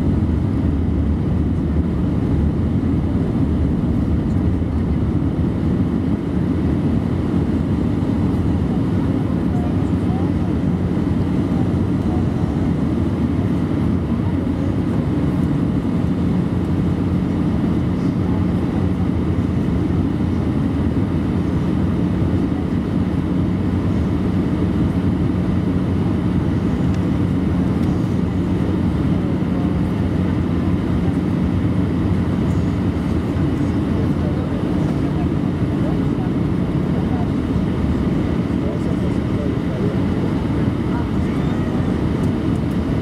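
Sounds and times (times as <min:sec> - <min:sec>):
low hum: 0:00.0 - 0:08.6
airplane cabin drone: 0:00.0 - 0:43.0.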